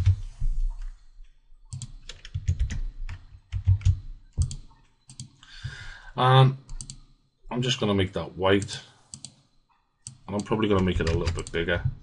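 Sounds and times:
typing on computer keyboard: 1.7s - 5.4s, 6.7s - 7.1s, 10.1s - 11.8s.

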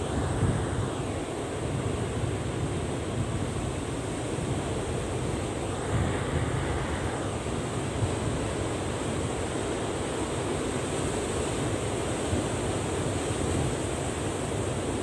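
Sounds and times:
wind buffeting microphone: 0.0s - 9.8s
heavy surf breaking: 4.8s - 9.4s.

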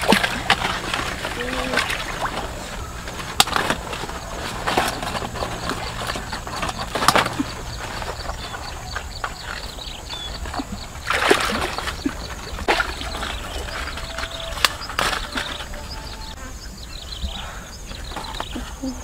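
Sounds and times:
water splashing: 0.0s - 16.4s
lotus leaves rustling: 0.0s - 19.0s.

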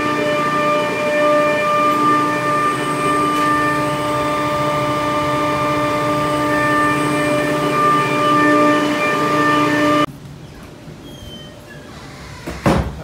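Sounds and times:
chiller machinery whining: 0.0s - 10.1s.

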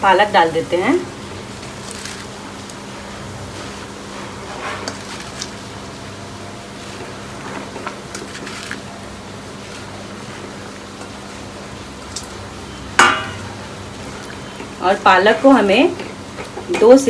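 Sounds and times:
water boiling in a pan: 0.0s - 17.0s
leaves rustling: 1.4s - 6.0s, 6.7s - 12.5s.

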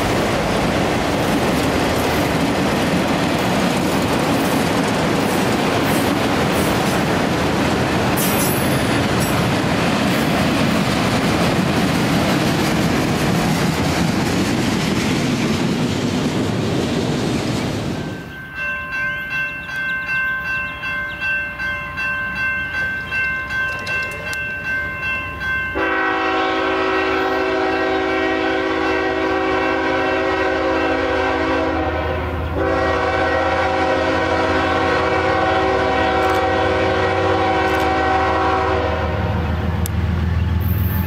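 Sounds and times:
train clattering past: 0.0s - 41.0s
thin steady ringing tone: 18.0s - 25.8s
locomotive horn blast: 25.8s - 39.5s.

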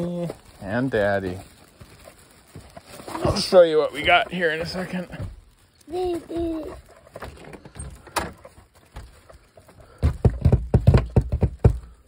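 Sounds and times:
loud knocks on a door: 10.0s - 12.0s.

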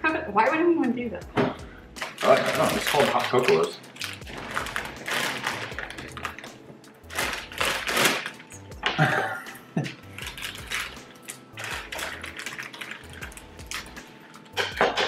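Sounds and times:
scissors cutting plastic: 2.0s - 8.5s
plastic bag crinkling: 2.0s - 8.6s, 10.1s - 14.0s.

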